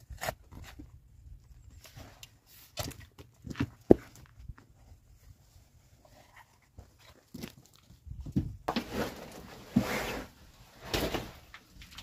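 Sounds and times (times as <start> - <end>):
soil and stones scraping: 0.0 - 12.0
soil pouring and rustling: 8.7 - 12.0.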